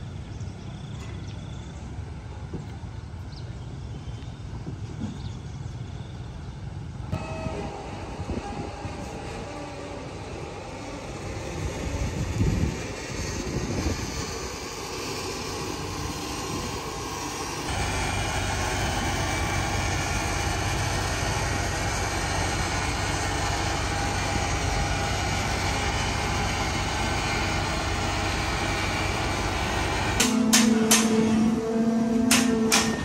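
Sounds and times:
engine drone: 0:07.0 - 0:33.0.

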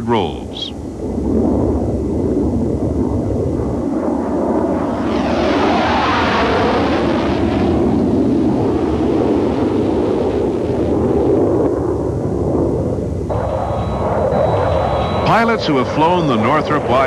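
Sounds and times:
jet engines passing: 0:00.0 - 0:17.0.

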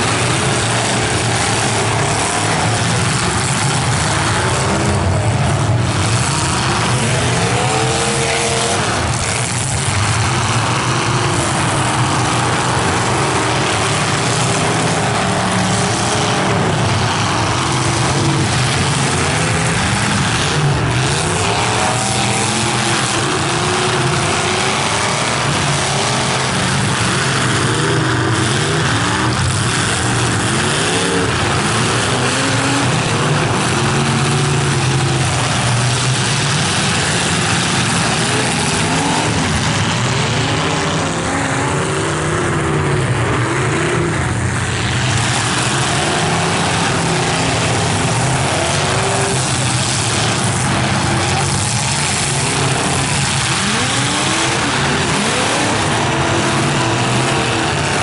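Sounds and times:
car engines revving: 0:00.0 - 0:58.0.

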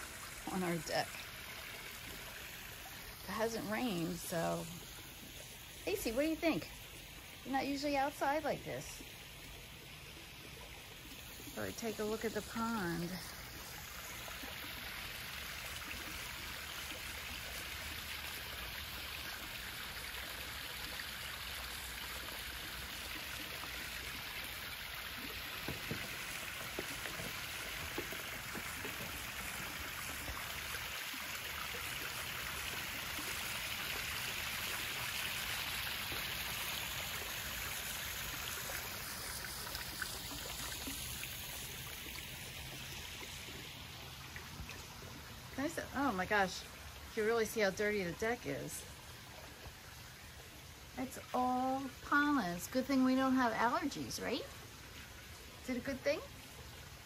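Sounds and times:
waterfall splashing over rocks: 0:00.0 - 0:04.9, 0:11.2 - 0:44.2.

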